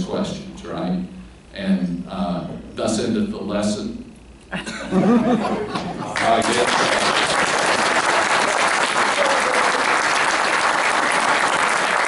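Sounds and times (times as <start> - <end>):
audience applauding: 6.1 - 12.0.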